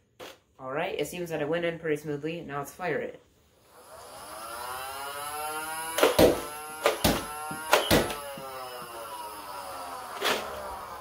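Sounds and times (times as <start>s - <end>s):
toy blaster motors whining: 3.7s - 11.0s
toy blaster shots clacking: 5.9s - 8.6s.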